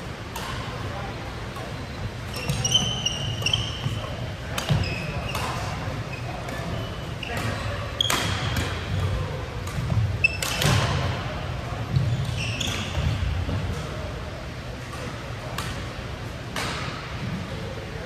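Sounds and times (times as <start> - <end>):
shoes squeaking on court floor: 1.5 - 13.8
racket striking shuttlecock: 7.4 - 11.0.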